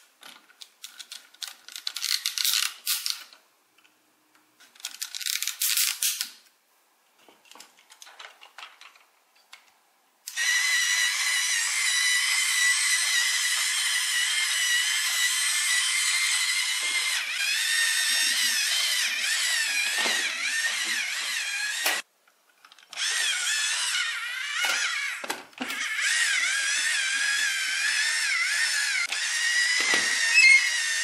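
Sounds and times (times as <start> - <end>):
plastic toy blocks clicking: 0.2 - 3.9.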